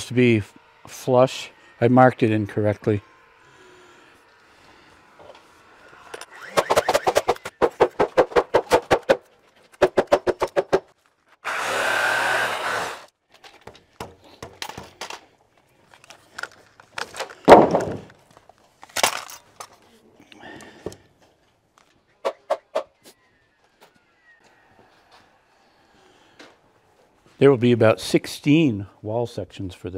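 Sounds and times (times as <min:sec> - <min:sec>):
fast even knocks: 0:06.5 - 0:09.2
heavy thunk on lumber: 0:17.5 - 0:18.1.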